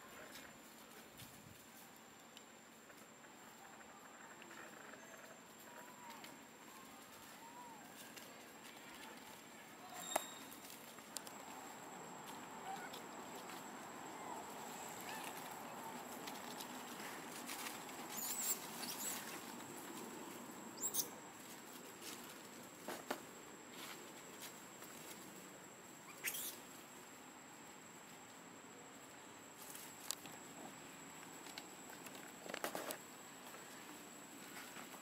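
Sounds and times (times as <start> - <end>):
dry leaves rustling: 5.8 - 22.9
baby monkeys squeaking: 18.1 - 19.2, 20.8 - 21.1, 26.1 - 26.6.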